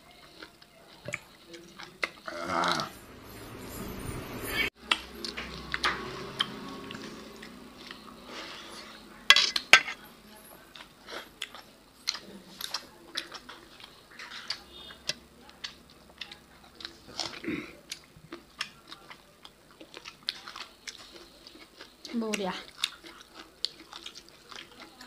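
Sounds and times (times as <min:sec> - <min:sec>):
chewing: 0:00.0 - 0:03.0, 0:04.7 - 0:25.0
fingers and food clinking on plates: 0:09.3 - 0:17.4.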